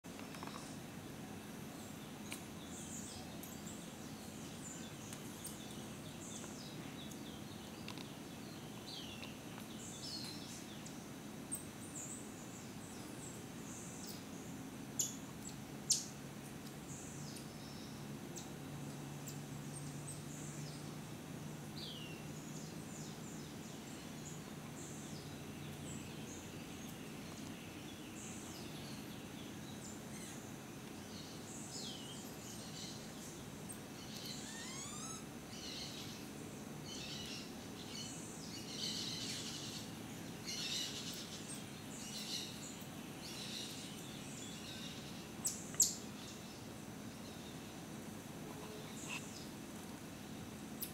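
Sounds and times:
high-pitched chirping calls: 0:34.0 - 0:36.1.

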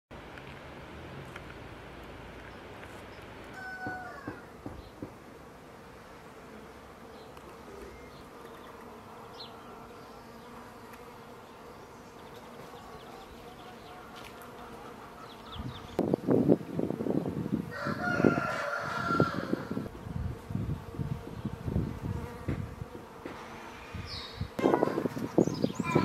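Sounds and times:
flying insect buzzing: 0:02.6 - 0:26.0
rooster crowing: 0:03.5 - 0:04.6, 0:17.7 - 0:19.9, 0:25.8 - 0:26.0.

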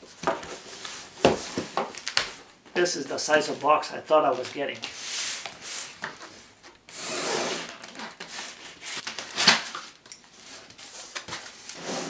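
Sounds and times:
cardboard and tape rustling: 0:00.0 - 0:06.8, 0:07.7 - 0:11.9
box sliding out: 0:06.9 - 0:07.8, 0:11.7 - 0:12.0.

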